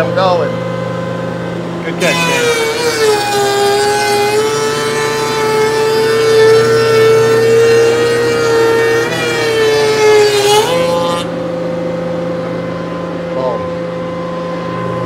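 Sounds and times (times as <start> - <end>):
shaper motor whine: 0.0 - 15.0
cutter hissing in wood: 2.0 - 11.3.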